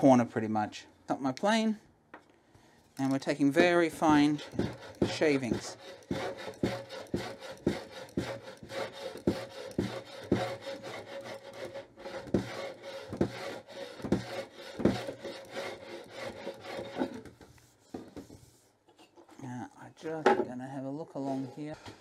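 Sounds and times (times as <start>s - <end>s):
hand plane strokes on wood: 3.3s - 18.6s.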